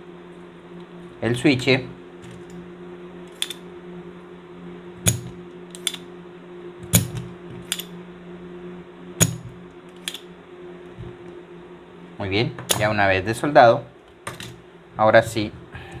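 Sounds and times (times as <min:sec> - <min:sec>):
steady low hum: 0:00.0 - 0:16.0
desoldering pump snapping: 0:03.2 - 0:03.7, 0:05.0 - 0:06.1, 0:06.8 - 0:08.0, 0:09.2 - 0:11.4, 0:12.6 - 0:13.0.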